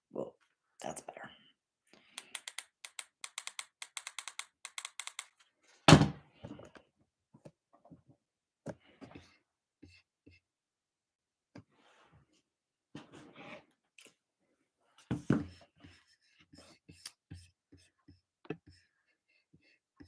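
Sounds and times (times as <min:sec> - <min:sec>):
fast sharp clicks: 0:02.1 - 0:05.3.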